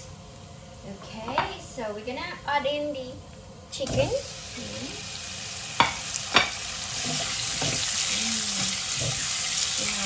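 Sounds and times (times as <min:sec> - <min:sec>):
chicken sizzling in a pan: 0:03.7 - 0:10.0.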